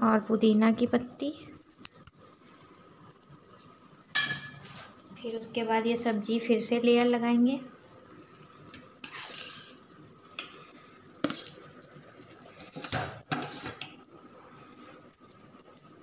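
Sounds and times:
metal spoon scraping steel bowl: 9.0 - 9.7, 11.2 - 11.7, 12.4 - 14.0.

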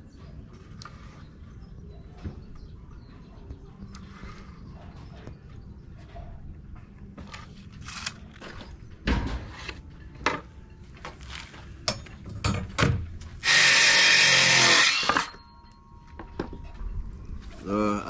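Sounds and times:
circular saw cutting wood: 13.4 - 15.4.

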